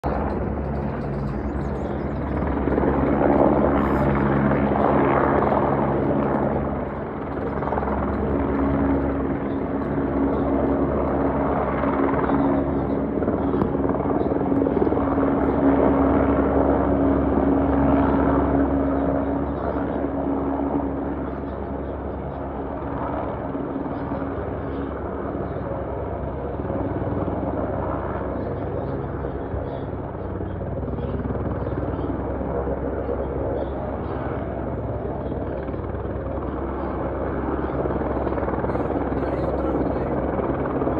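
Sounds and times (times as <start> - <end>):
low even hum: 0.0 - 14.1
helicopter rotor and engine drone: 0.0 - 40.9.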